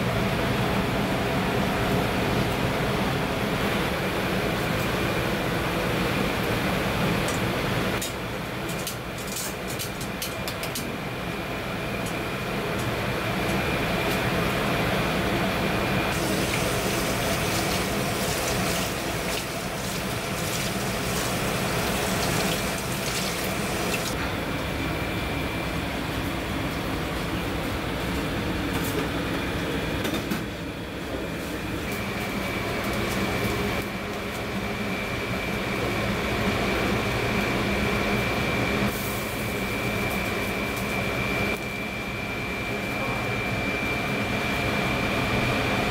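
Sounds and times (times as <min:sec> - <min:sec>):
water running into a sink: 0:16.2 - 0:24.1.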